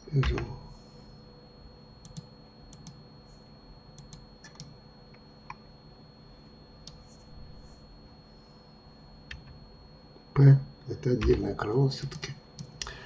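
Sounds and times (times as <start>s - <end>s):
low steady hum: 0.0s - 13.0s
computer mouse and keyboard clicks: 2.0s - 3.0s, 4.0s - 4.7s.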